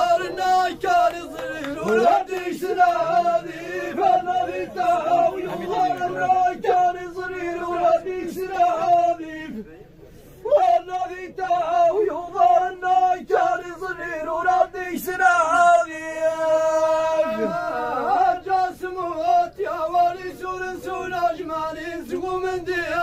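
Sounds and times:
man chanting verse: 0:00.0 - 0:09.5.

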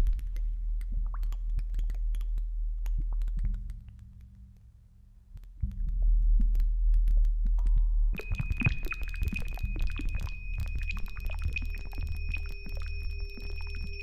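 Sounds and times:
faint steady synth tone: 0:08.0 - 0:14.0.

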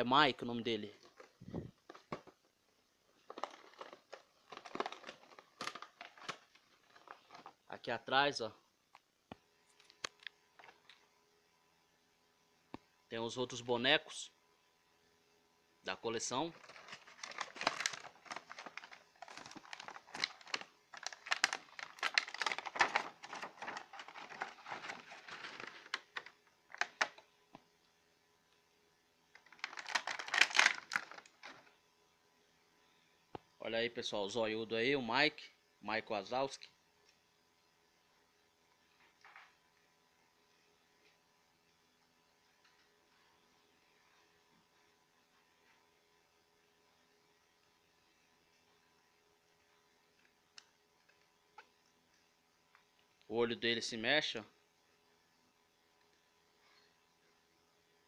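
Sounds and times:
plastic packaging crinkling: 0:03.2 - 0:07.6, 0:16.5 - 0:27.2, 0:29.4 - 0:31.7.

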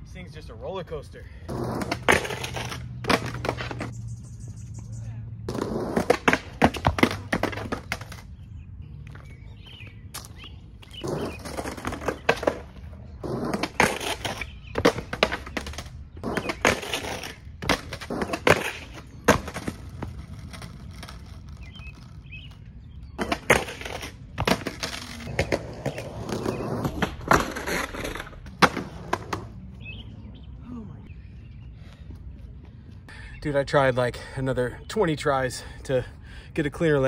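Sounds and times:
skateboard rolling on concrete: 0:01.5 - 0:04.6, 0:05.4 - 0:30.5
skateboard pops and clacks: 0:01.6 - 0:03.9, 0:05.5 - 0:08.2, 0:13.4 - 0:21.2, 0:23.2 - 0:29.5.

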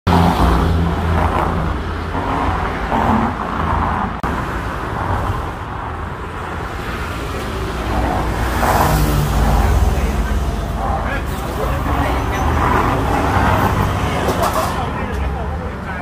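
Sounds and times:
road traffic hum: 0:00.0 - 0:16.0.

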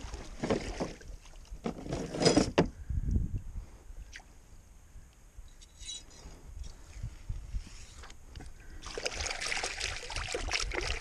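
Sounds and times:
hands splashing in muddy water: 0:08.8 - 0:11.0.

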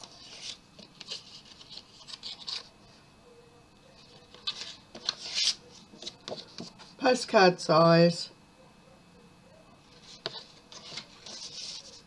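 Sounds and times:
paper cards rustling: 0:00.0 - 0:02.7, 0:04.0 - 0:06.9, 0:09.9 - 0:12.0.

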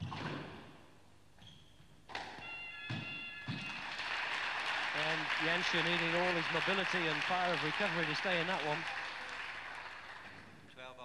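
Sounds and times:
shoe squeaking on court floor: 0:01.4 - 0:03.8.

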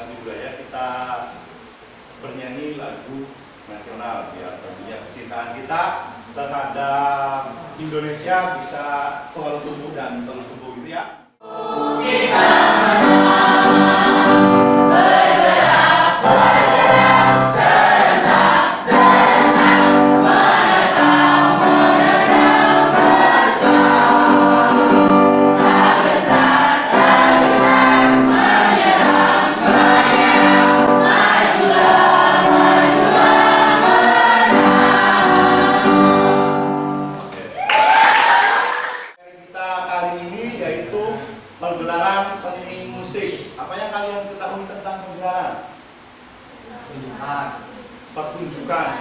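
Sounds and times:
students singing together: 0:11.4 - 0:37.1
electronic keyboard: 0:11.4 - 0:37.4.

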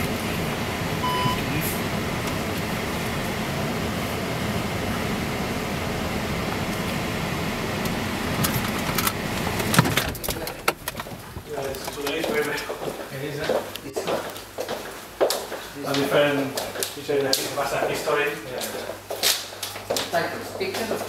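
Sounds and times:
car road and engine noise: 0:00.0 - 0:12.6
short electronic beep: 0:01.0 - 0:01.5.

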